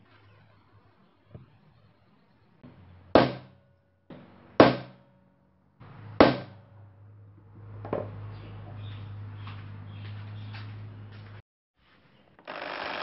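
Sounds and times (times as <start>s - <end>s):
hammer striking metal punch: 3.2s - 5.2s, 6.2s - 6.7s.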